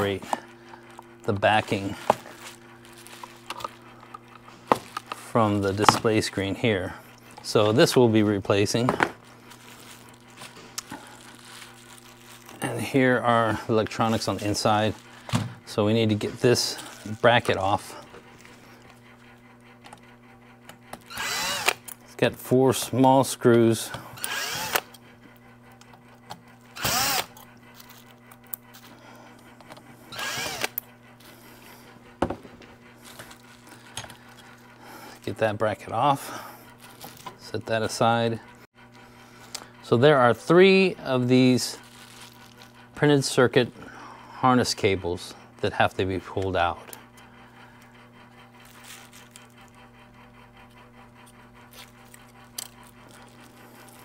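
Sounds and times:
steady low hum: 0.0 - 54.0
cordless drill backing out screws: 21.0 - 21.9, 26.8 - 27.4, 30.2 - 30.8.

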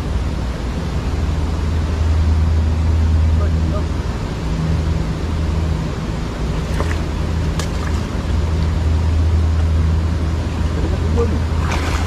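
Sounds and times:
low steady hum: 0.0 - 12.0
wind: 0.0 - 12.0
flowing water: 5.2 - 12.0.

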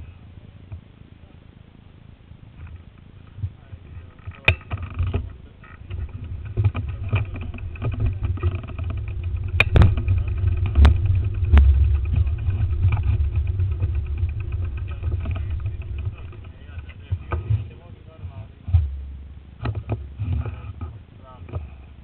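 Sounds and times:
bicycle rolling on road: 2.4 - 22.0
wind buffeting microphone: 2.4 - 22.0
sharp knocks from bumps: 4.2 - 21.8.

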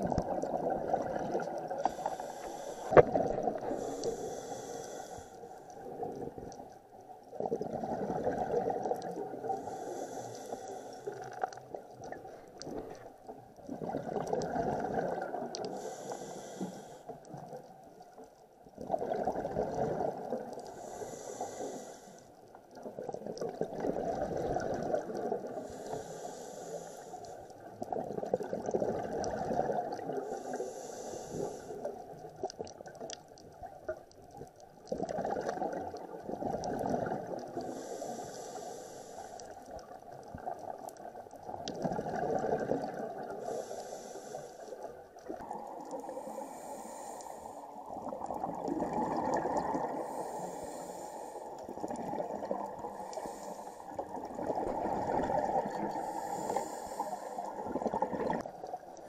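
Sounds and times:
exhaled bubbles: 0.0 - 4.4, 7.3 - 9.8, 13.6 - 15.9, 18.8 - 21.0, 22.8 - 25.8, 27.6 - 30.5, 34.8 - 38.0, 39.8 - 43.7, 47.6 - 50.8, 51.5 - 59.0
diver breathing through regulator: 1.8 - 5.8, 9.4 - 11.5, 15.6 - 17.2, 20.6 - 22.3, 25.4 - 27.5, 30.0 - 32.0, 37.5 - 39.6, 42.8 - 44.9, 45.8 - 52.0, 52.8 - 58.4.

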